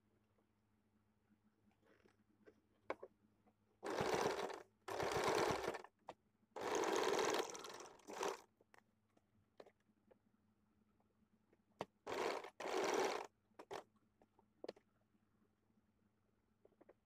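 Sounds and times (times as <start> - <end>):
sewing machine stitching: 3.8 - 5.9, 6.6 - 8.4, 12.1 - 13.8.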